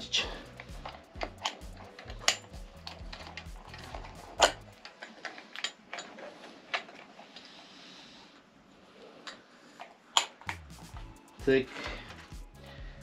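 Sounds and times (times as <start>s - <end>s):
small parts clicking and knocking: 0.5s - 7.5s, 9.2s - 11.1s.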